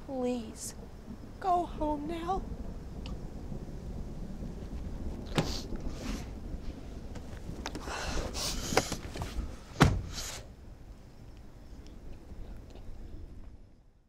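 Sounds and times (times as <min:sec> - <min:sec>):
low outdoor rumble: 0:00.0 - 0:14.0
breathy sniffs: 0:10.0 - 0:10.5.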